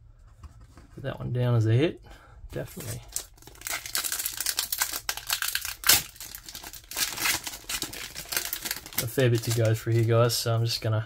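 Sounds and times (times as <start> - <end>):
foil wrapper tearing: 2.8 - 10.1
foil wrapper crinkling: 2.8 - 10.3.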